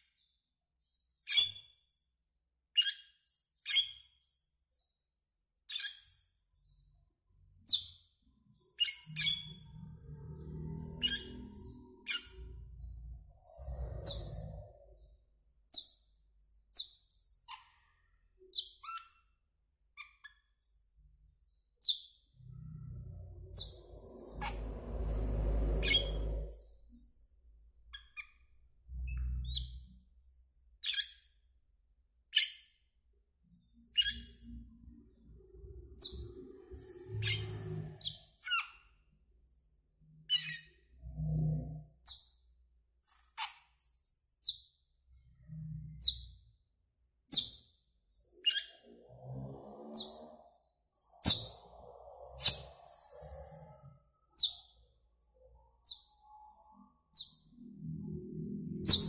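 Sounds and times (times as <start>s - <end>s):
low background rumble: 22.4s - 29.6s
starling calling: 22.6s - 27.2s.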